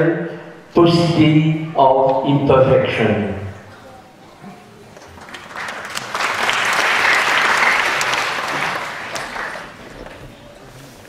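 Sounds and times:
audience applauding: 4.9 - 9.9.

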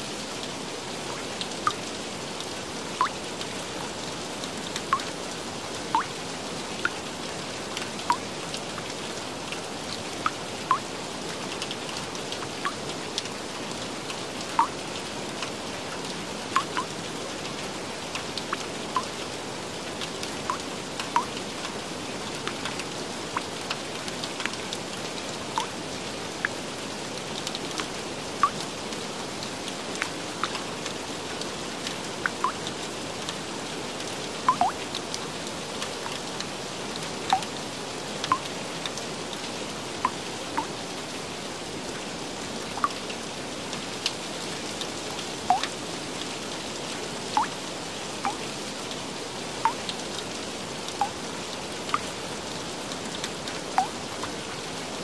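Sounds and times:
steady rain hiss: 0.0 - 55.0
raindrops plinking: 5.9 - 6.2, 10.2 - 10.9, 14.5 - 14.8, 16.6 - 16.9, 28.4 - 28.6, 32.2 - 32.7, 34.4 - 35.0, 37.3 - 37.5, 38.2 - 38.5, 42.8 - 43.0, 45.4 - 45.8, 47.4 - 47.6, 48.2 - 48.4, 49.6 - 50.0, 50.9 - 51.2, 53.8 - 54.0.

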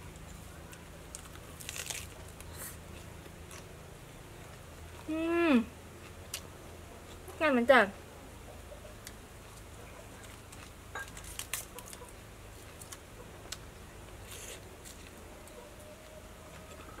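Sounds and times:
lettuce leaves snapping and rustling: 1.1 - 2.6, 10.2 - 12.1
crunchy bite and chewing: 1.1 - 3.7, 10.2 - 13.6, 14.2 - 15.2.

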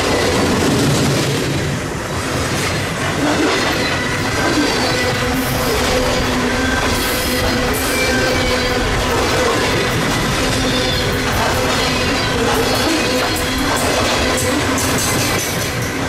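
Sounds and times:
clicks and clanks of train cars: 0.0 - 16.0
freight train wheels rumbling on rail: 0.0 - 16.0
wheel squeal: 3.3 - 8.8.

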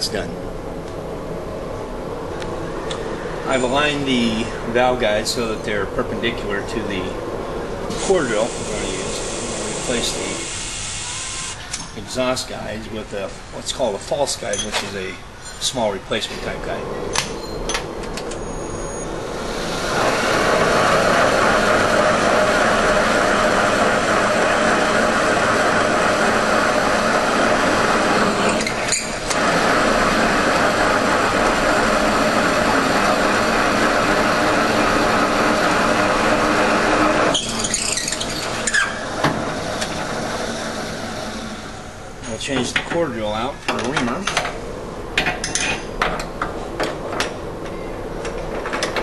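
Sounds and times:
drill cutting metal: 7.9 - 11.7, 19.3 - 42.0.

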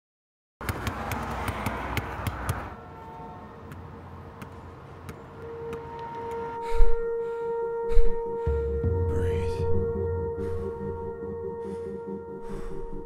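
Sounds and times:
distant traffic noise: 0.6 - 9.0.

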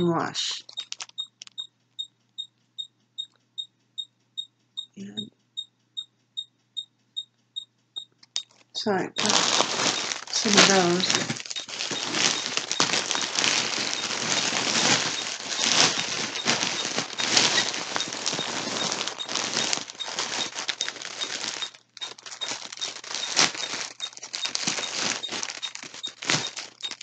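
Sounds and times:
plastic packaging crinkling: 0.6 - 1.5, 8.3 - 27.0.

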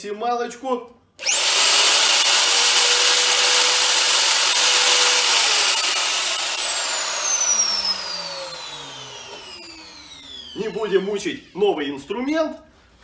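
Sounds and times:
electric router whining: 1.2 - 11.5
motor spinning down: 1.2 - 11.5.

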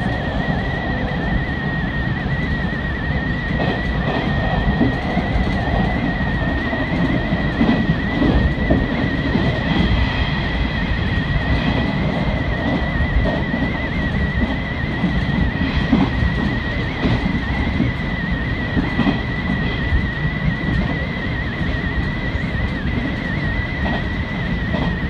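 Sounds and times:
high train whine: 0.0 - 25.0
train wheels rumbling on rail: 0.0 - 25.0.

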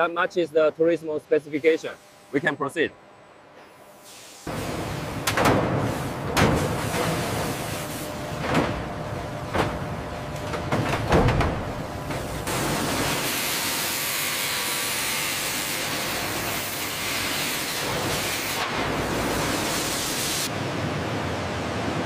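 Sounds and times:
loud steady hiss: 1.2 - 2.8, 3.9 - 8.2, 12.4 - 20.5.

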